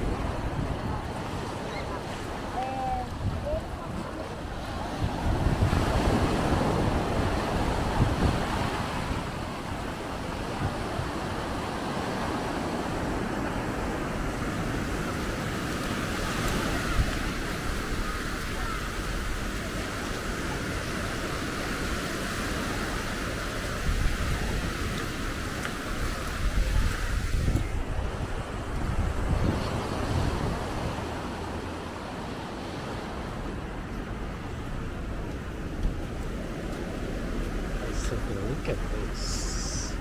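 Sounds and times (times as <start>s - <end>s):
wind on microphone: 0.0s - 31.8s
sea waves washing on shore: 0.0s - 40.0s.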